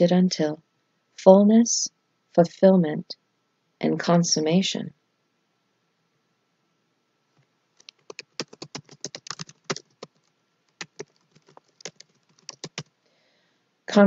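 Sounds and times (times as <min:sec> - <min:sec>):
computer keyboard typing: 0:07.8 - 0:12.9.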